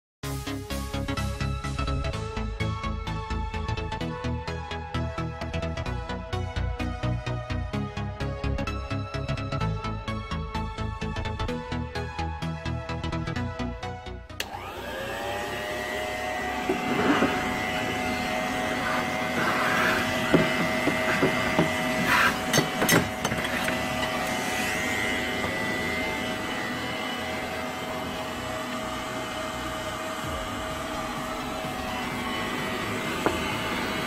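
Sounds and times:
vacuum cleaner motor whining: 14.4 - 34.0.

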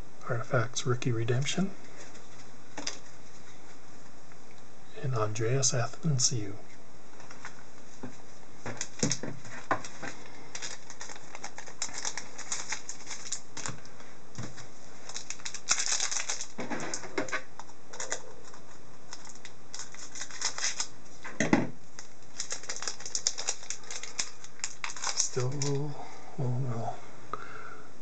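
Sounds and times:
foil wrapper crinkling: 8.6 - 21.0, 21.9 - 25.8.

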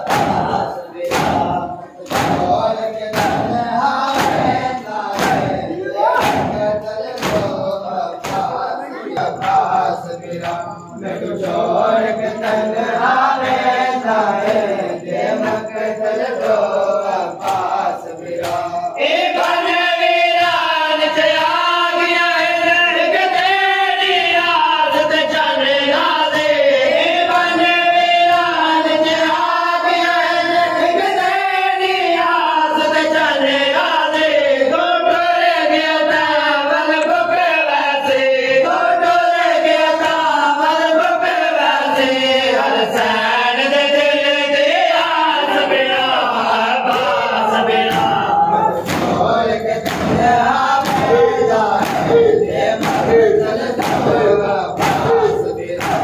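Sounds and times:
chest beating slaps: 0.0 - 9.7, 47.8 - 56.0
men chanting in unison: 0.0 - 56.0.

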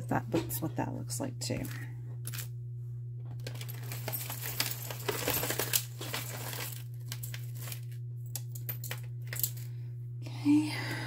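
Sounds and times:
steady low hum: 0.0 - 11.0
jewelry rustling and clicking: 3.4 - 9.7.

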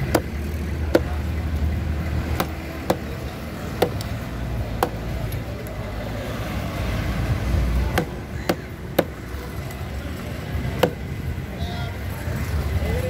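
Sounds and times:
knife chopping on wooden board: 8.0 - 9.2, 10.8 - 11.0.

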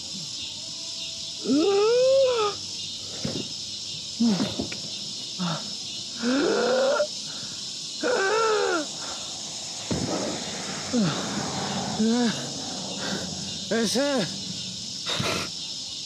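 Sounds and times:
man howling: 8.0 - 9.1.

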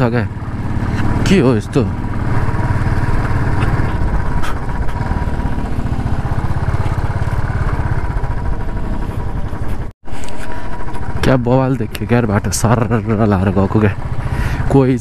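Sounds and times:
motorcycle engine at low revs: 0.0 - 15.0
wind and road noise: 0.0 - 15.0.

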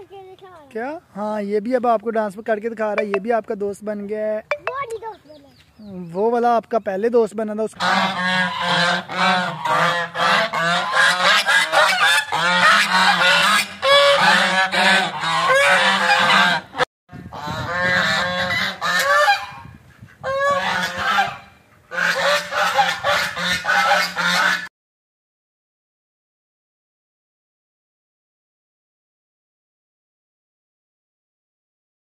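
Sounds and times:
geese honking: 7.8 - 16.8, 17.4 - 19.6, 20.2 - 24.7.

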